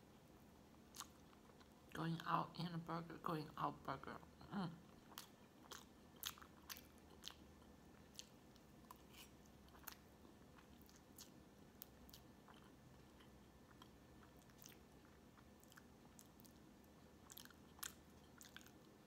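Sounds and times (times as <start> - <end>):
person chewing: 0.8 - 1.8, 4.8 - 19.0.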